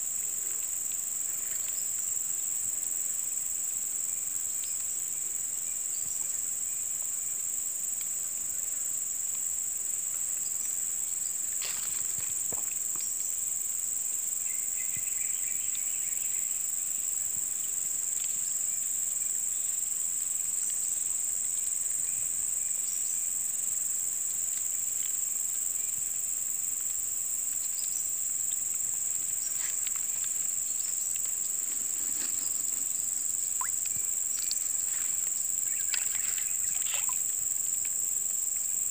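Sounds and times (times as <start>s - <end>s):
insects chirring: 0.0s - 38.9s
faint ticks: 0.2s - 2.8s, 7.9s - 13.4s, 17.3s - 22.3s, 24.1s - 38.9s.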